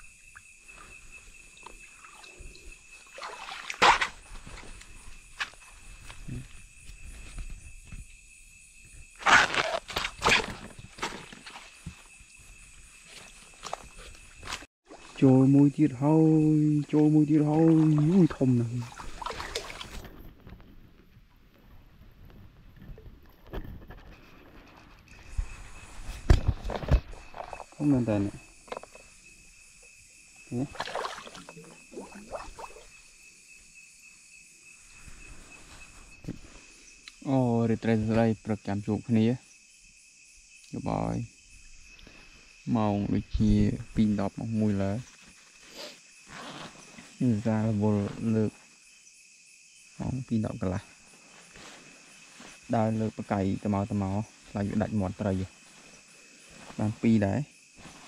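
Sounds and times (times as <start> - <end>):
water splashing and sloshing: 0.0 - 8.0, 9.2 - 15.3, 17.2 - 21.7, 22.3 - 29.8, 30.4 - 33.2
night insects droning: 0.0 - 58.0
bare feet stepping in mud: 3.1 - 6.4, 9.2 - 12.0.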